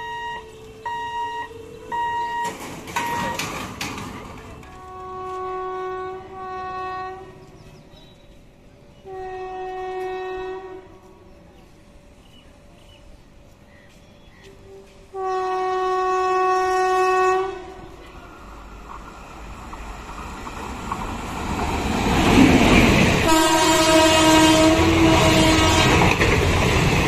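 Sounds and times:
train horn blasts: 0:00.0 - 0:03.4, 0:04.5 - 0:07.6, 0:09.0 - 0:11.3, 0:14.3 - 0:18.0, 0:23.2 - 0:26.2.

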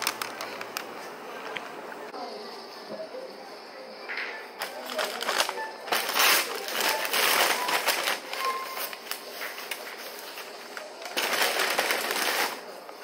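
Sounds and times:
paper packaging rustling: 0:00.0 - 0:01.5, 0:04.6 - 0:13.0.

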